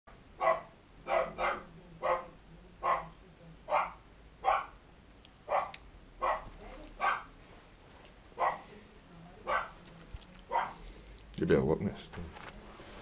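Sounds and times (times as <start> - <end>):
dog barking: 0.4 - 4.8, 5.5 - 7.3, 8.4 - 8.7, 9.4 - 9.8, 10.5 - 10.8.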